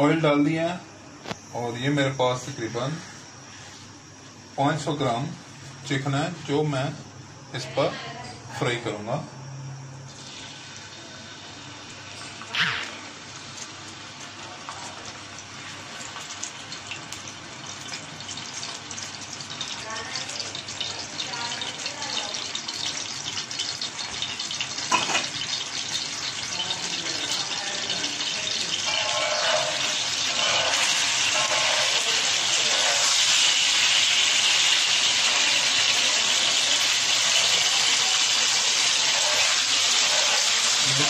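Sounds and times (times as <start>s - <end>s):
chicken sizzling in hot oil: 10.1s - 41.0s
spatula turning food: 20.4s - 41.0s.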